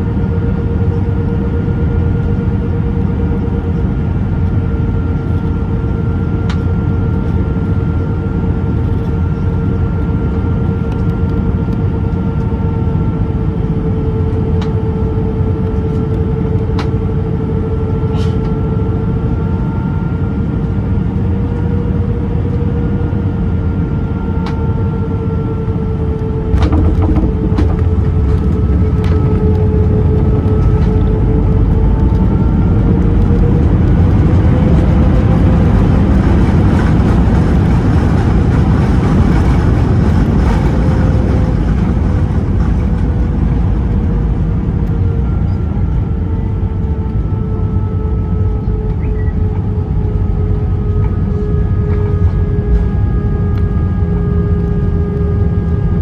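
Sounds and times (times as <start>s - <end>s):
aircraft cabin air rush and engine hum: 0.0s - 56.0s
runway rumble: 26.0s - 46.2s.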